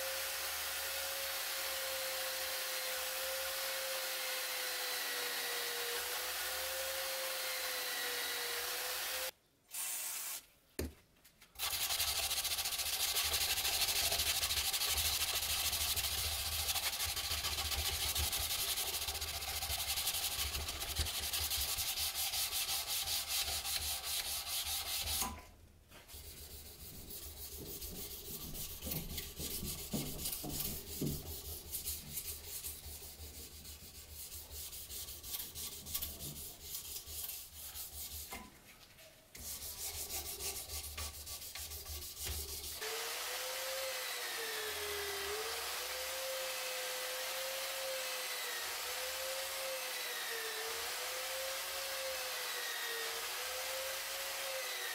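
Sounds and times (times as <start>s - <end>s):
electric sanding disc running: 0.0s - 9.3s, 42.8s - 54.9s
hand sanding metal blade: 11.6s - 25.4s, 26.0s - 38.5s, 39.4s - 54.9s.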